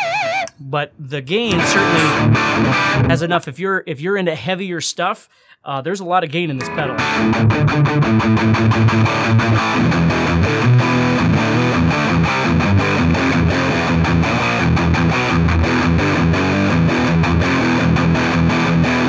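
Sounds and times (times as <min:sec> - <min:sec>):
distorted electric guitar riff: 0:01.4 - 0:03.2, 0:06.6 - 0:19.0.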